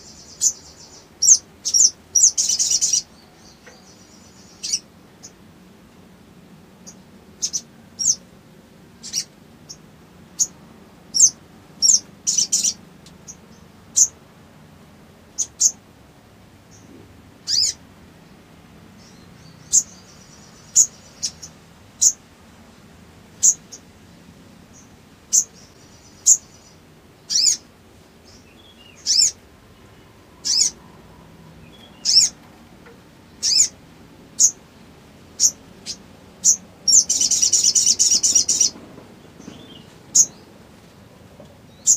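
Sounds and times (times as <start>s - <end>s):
bird chirping: 0.0s - 5.4s, 6.8s - 8.2s, 9.0s - 14.2s, 15.3s - 15.8s, 16.7s - 17.8s, 19.0s - 22.2s, 23.3s - 23.9s, 24.7s - 32.5s, 33.3s - 33.8s, 34.4s - 34.6s, 35.4s - 40.6s, 41.7s - 41.9s.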